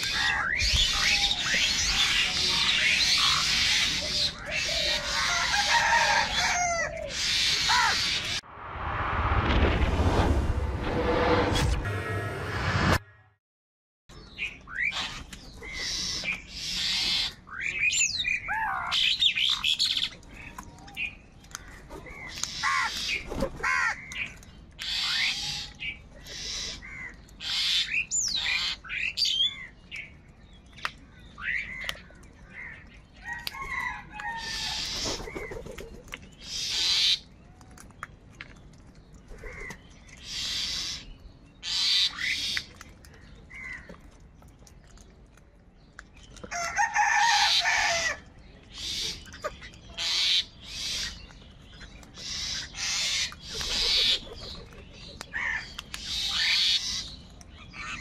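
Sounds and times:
crows cawing: 4.5s - 8.1s, 22.6s - 24.1s
small birds chirping: 14.1s - 46.8s, 47.4s - 58.0s.

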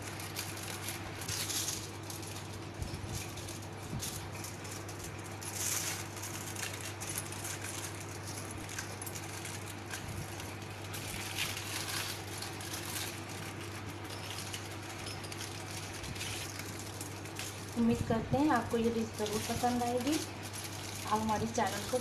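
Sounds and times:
aluminium foil crinkling: 0.0s - 22.0s.

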